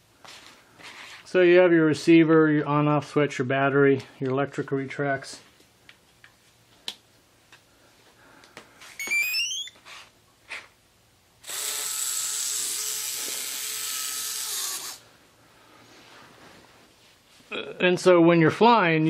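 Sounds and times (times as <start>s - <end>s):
electric motor whir: 11.4s - 15.0s.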